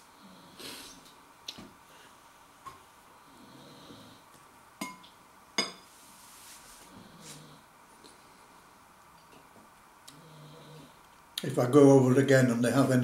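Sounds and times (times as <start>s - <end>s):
metal spoon clinking ceramic bowl: 4.8s - 5.0s, 5.6s - 5.8s.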